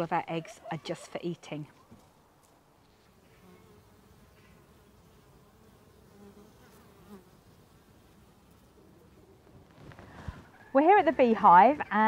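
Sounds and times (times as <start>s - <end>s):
honeybees buzzing: 3.0s - 9.6s.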